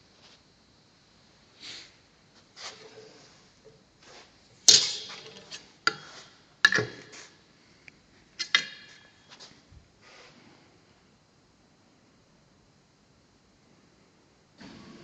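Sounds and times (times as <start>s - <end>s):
sword clanking on anvil: 4.7s - 6.0s.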